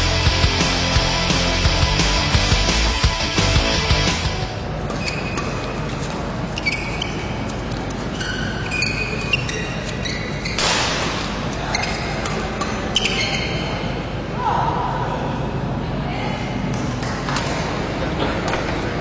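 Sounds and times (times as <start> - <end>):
sports shoes squeaking on court: 4.8 - 10.9, 11.5 - 13.9
sharp ball hits: 10.6 - 11.4
crowd murmur: 13.7 - 19.0.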